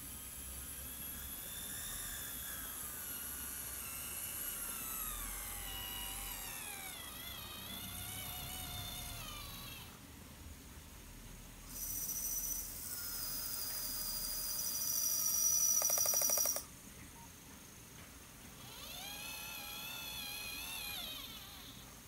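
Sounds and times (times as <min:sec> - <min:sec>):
model tractor motor whining: 0:00.0 - 0:10.0, 0:18.6 - 0:22.0.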